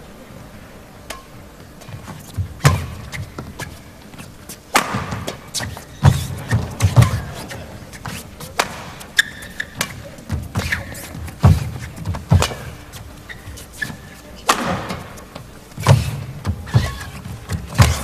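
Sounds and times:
shoes squeaking on court: 1.4s - 18.0s
heavy footfalls: 1.6s - 18.0s
racket striking shuttlecock: 2.6s - 3.8s, 4.7s - 12.8s, 13.8s - 18.0s.

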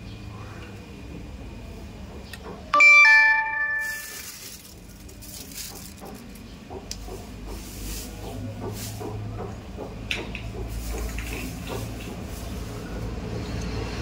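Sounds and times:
two-note ding-dong chime: 2.8s - 4.2s.

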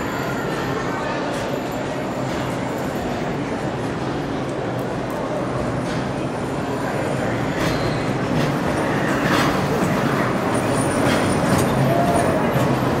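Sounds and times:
busy shopping mall noise: 0.0s - 13.0s
ride-on train clicking and knocking: 4.4s - 13.0s.

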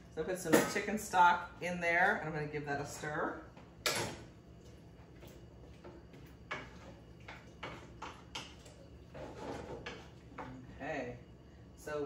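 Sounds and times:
wooden spoon scraping skillet: 9.1s - 10.3s.

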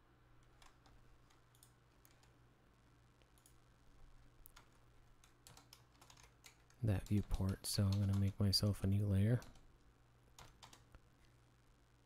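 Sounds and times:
faint steady hum: 0.0s - 12.0s
computer mouse clicks: 0.4s - 2.4s, 3.2s - 3.6s, 4.4s - 8.5s, 10.4s - 11.0s.

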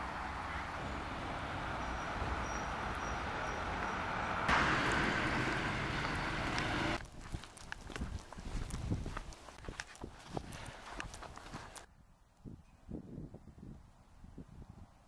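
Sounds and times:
cars driving on city road: 0.0s - 7.1s.

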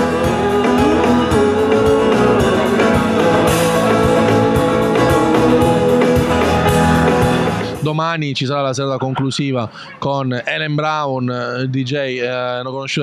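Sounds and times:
drum kit: 0.0s - 7.8s
electric guitar: 0.0s - 7.8s.

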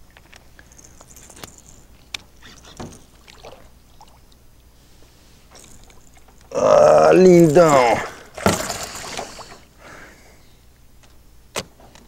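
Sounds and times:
fishing gear clicks and knocks: 0.0s - 3.7s
faint water sounds: 2.4s - 9.8s.

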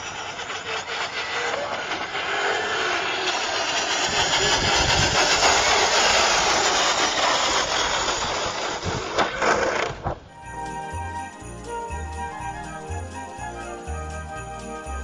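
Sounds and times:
radio-controlled car motor: 0.0s - 9.8s.

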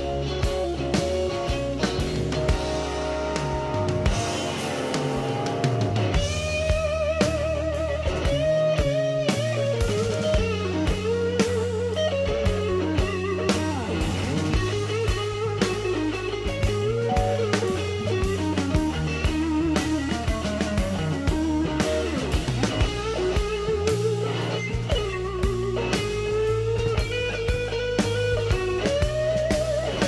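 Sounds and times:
bass: 0.0s - 30.0s
drum kit: 0.0s - 30.0s
lead electric guitar: 0.0s - 30.0s.

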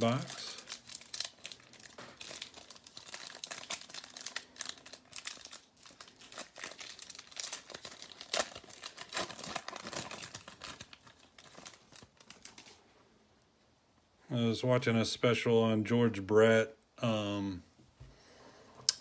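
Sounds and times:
foil wrapper crinkling: 0.0s - 12.8s.

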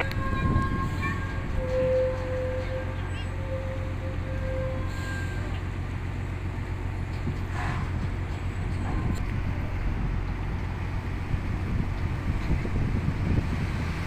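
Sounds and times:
diesel engines rumbling: 0.0s - 14.0s.

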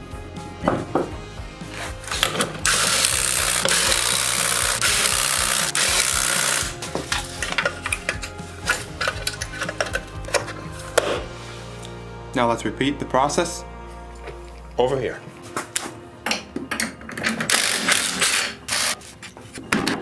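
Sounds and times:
impact wrench rattling: 2.1s - 10.6s, 16.8s - 19.0s
clicks of tool handling: 6.9s - 11.2s.

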